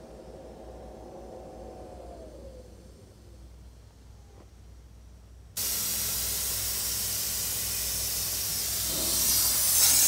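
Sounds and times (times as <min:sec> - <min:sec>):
plasma cutter hissing: 0:05.6 - 0:10.0.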